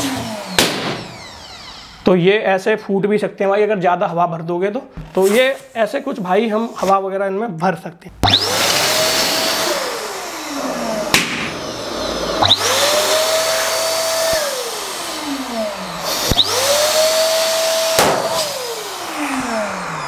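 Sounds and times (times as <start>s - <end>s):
electric balloon pump running: 0.0s - 2.1s, 8.2s - 20.0s
balloons bursting: 0.5s - 1.1s, 11.1s - 11.6s, 16.0s - 16.7s, 17.9s - 18.5s.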